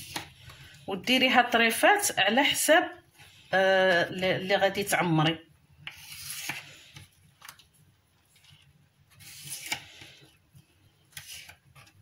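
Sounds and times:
knife scraping cabbage leaves: 5.9 - 7.1, 9.1 - 10.2, 11.1 - 12.0.

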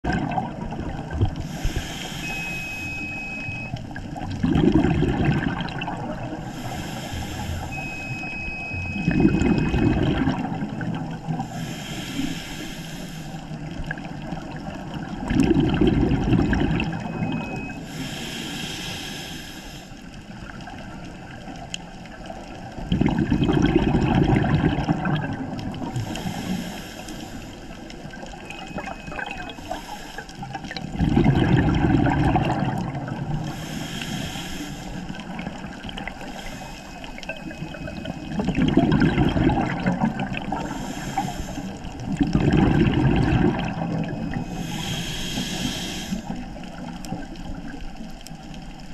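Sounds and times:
bubbling exhalations underwater: 0.0 - 1.5, 4.1 - 6.5, 8.8 - 11.5, 13.9 - 17.8, 22.7 - 26.1, 28.3 - 29.6, 30.4 - 33.6, 37.2 - 41.0, 42.0 - 44.7
hissing regulator inhalation: 1.4 - 3.5, 6.4 - 8.0, 11.5 - 13.5, 17.8 - 20.0, 26.0 - 27.9, 29.6 - 30.4, 33.4 - 35.5, 36.1 - 37.2, 40.5 - 42.0, 44.4 - 46.4.

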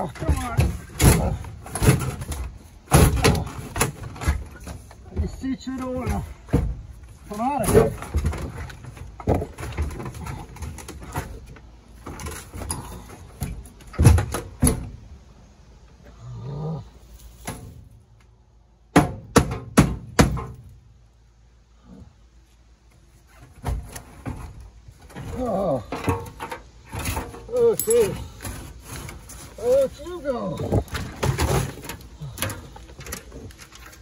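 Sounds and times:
sharp knocks: 18.9 - 20.6
metal seat frame clanking: 23.3 - 34.0.

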